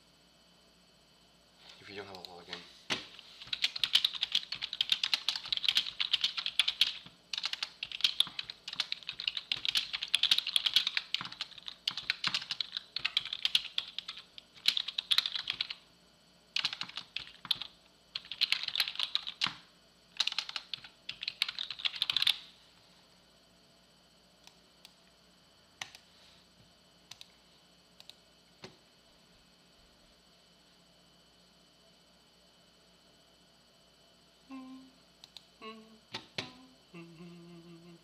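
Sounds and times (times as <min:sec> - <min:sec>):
rapid typing on keyboard: 0:03.4 - 0:15.8, 0:16.6 - 0:19.6, 0:20.2 - 0:22.4.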